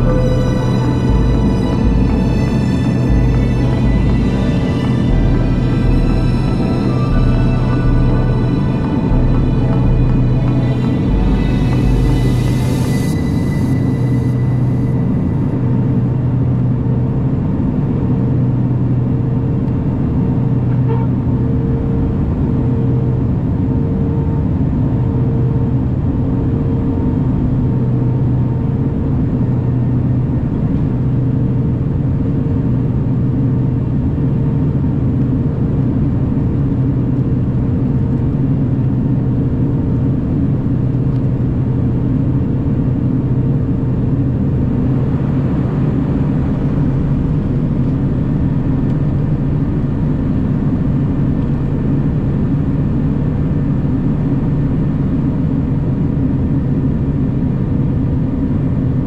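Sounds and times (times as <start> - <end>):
propeller tone pulsing: 0.0 - 18.3
turboprop engines droning in cabin: 0.0 - 59.0.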